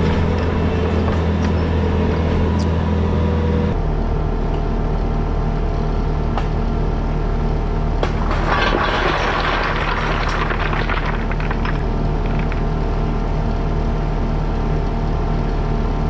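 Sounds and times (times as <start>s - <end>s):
stones clattering out: 8.0s - 12.8s.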